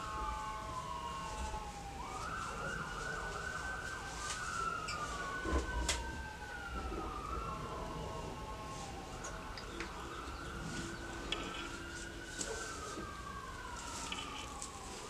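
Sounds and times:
siren wailing: 0.0s - 15.0s.

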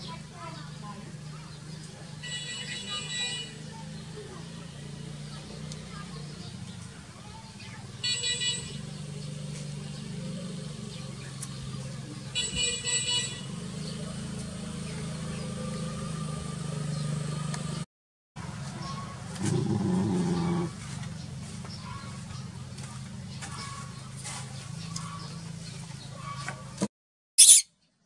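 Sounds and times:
vehicle engine humming: 0.0s - 26.9s
car horn honks: 2.2s - 3.7s, 8.0s - 8.8s, 12.4s - 13.6s.

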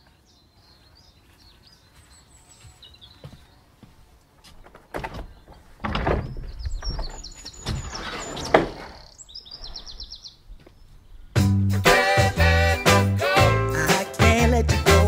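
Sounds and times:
small birds chirping: 0.0s - 11.6s
glass door rattling and scraping: 4.7s - 9.1s.

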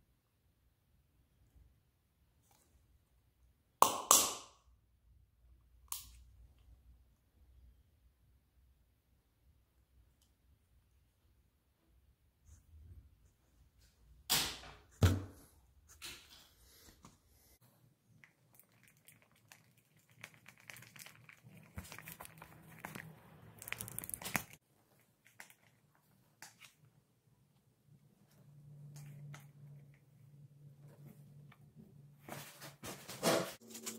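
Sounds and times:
plastic cup crinkling and scraping: 18.6s - 25.8s.

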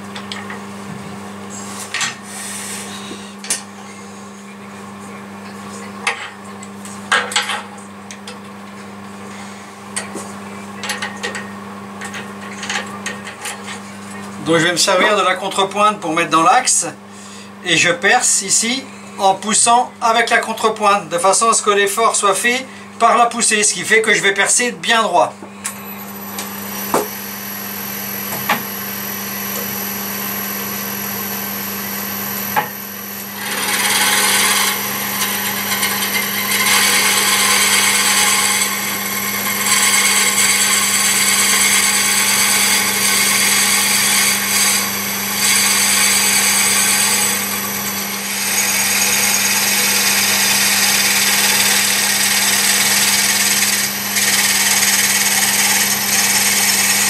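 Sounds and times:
wood lathe motor hum: 25.6s - 57.0s
drill bit cutting into wood: 31.3s - 57.0s.

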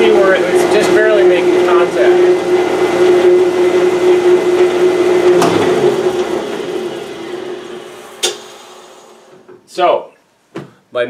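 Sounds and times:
machine winding down: 4.6s - 9.0s
jointer planer humming: 4.7s - 8.4s.

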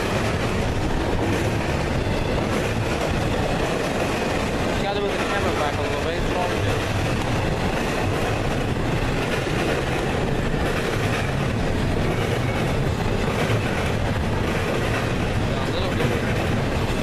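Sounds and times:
steel wheels on rails: 0.0s - 17.0s.

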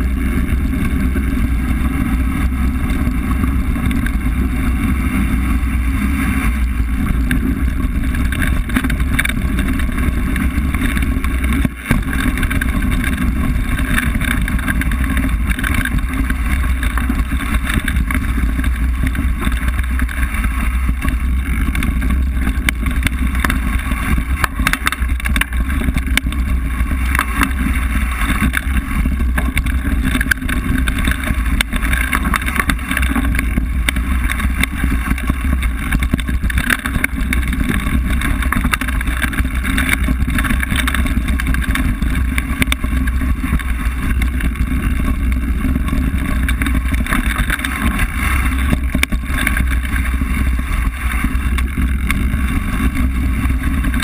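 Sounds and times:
bike rattles and knocks: 0.0s - 54.0s
wind and tyres on dirt: 0.0s - 54.0s.

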